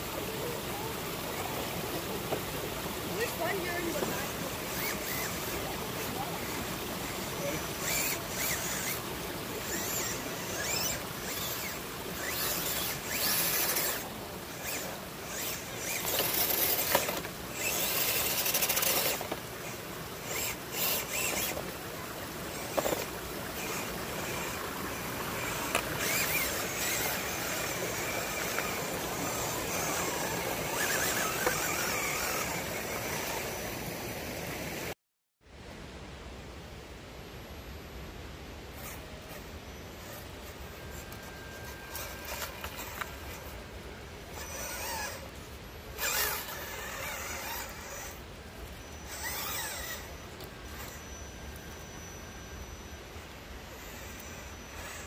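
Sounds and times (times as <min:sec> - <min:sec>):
electric motor whining: 0:00.0 - 0:34.9, 0:38.8 - 0:55.0
stream rushing: 0:00.0 - 0:35.0.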